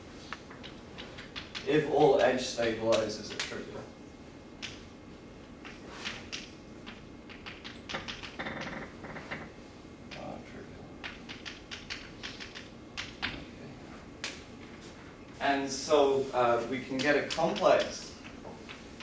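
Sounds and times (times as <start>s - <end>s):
chalk tapping and scratching on blackboard: 5.7s - 8.4s.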